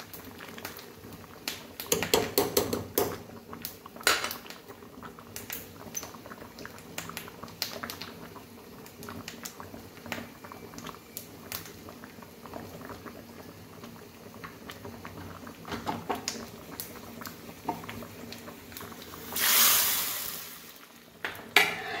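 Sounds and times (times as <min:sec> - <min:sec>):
curry bubbling in a pot: 0:00.0 - 0:22.0.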